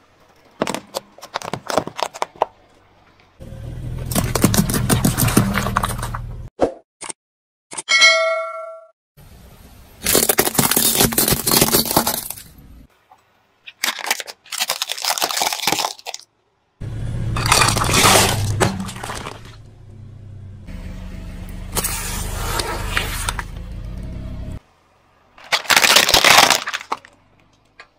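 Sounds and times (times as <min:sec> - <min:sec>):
car tyre crushing objects: 0:00.4 - 0:06.5, 0:10.0 - 0:12.8, 0:17.1 - 0:19.8, 0:21.7 - 0:23.6, 0:24.6 - 0:27.9
bell-like ding: 0:07.9 - 0:08.9
plastic toy cars snapping: 0:25.4 - 0:27.9.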